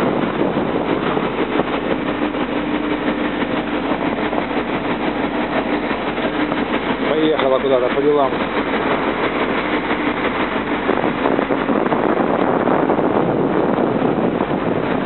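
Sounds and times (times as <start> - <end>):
steady hum: 0.0 - 15.0
heavy machinery noise: 0.8 - 12.2.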